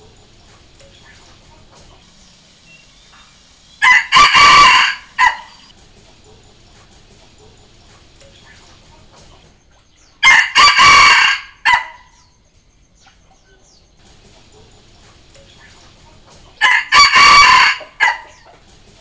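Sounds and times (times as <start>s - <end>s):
rooster crowing: 3.8s - 5.7s, 10.2s - 12.2s, 16.6s - 18.5s.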